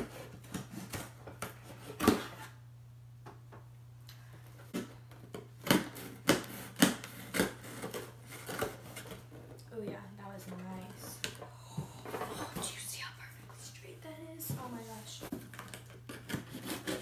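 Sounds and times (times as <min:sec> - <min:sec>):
knife cutting packing tape: 0:00.0 - 0:02.5, 0:04.8 - 0:09.2, 0:15.4 - 0:17.0
faint steady hum: 0:00.0 - 0:17.0.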